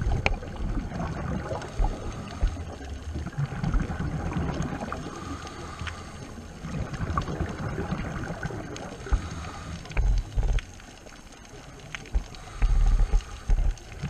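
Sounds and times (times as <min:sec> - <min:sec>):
underwater rumble of water and bubbles: 0:00.0 - 0:14.0
faint hiss: 0:08.3 - 0:14.0.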